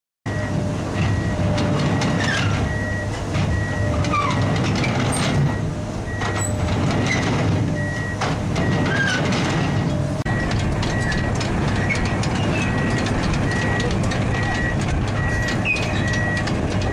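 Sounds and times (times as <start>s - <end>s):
diesel engine running: 0.3s - 16.9s
steel track links clattering: 1.6s - 16.9s
travel alarm short beeps: 10.3s - 16.5s.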